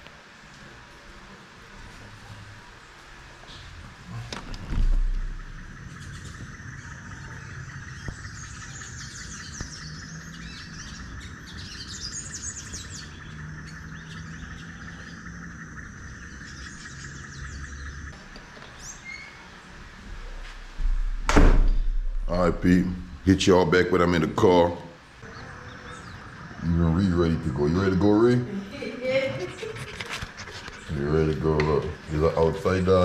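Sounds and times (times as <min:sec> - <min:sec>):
small birds chirping: 0:01.6 - 0:21.1, 0:21.7 - 0:33.0
loud thump: 0:20.8 - 0:23.2.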